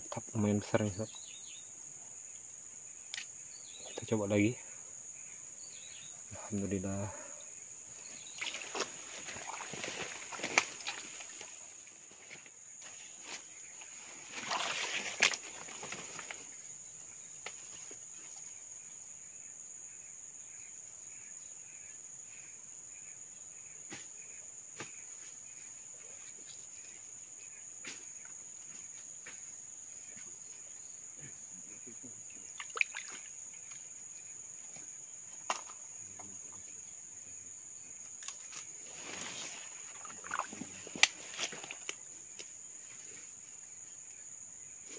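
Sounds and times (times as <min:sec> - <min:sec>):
pulsing insect call: 0:00.0 - 0:44.9
water splashing: 0:08.3 - 0:11.7, 0:14.3 - 0:16.0, 0:32.5 - 0:33.3, 0:39.2 - 0:42.0
rustling: 0:08.4 - 0:16.6, 0:38.4 - 0:43.3.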